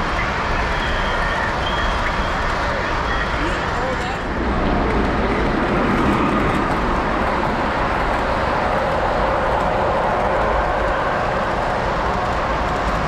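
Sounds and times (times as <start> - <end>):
model train rumbling on track: 0.0 - 13.0.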